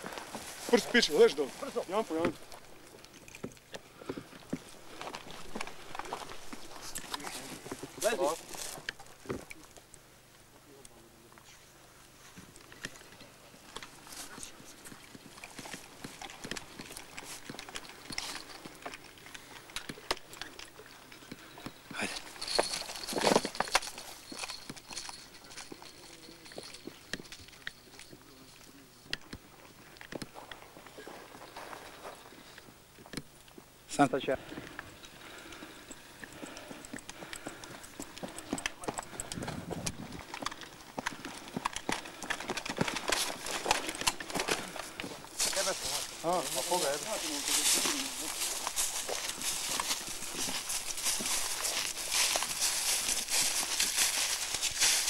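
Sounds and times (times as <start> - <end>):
footsteps on loose rocky ground: 0.0 - 9.4, 13.7 - 28.2, 29.2 - 33.1, 34.3 - 55.0
running footsteps on rocks: 34.4 - 55.0.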